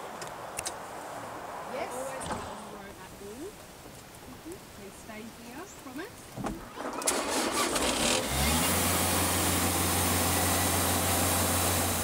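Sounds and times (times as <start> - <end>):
engine starting and idling: 6.6 - 12.0.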